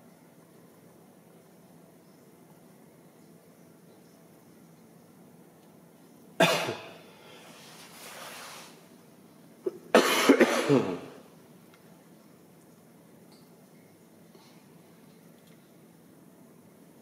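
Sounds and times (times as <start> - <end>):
person coughing: 6.4 - 7.0, 9.7 - 11.2.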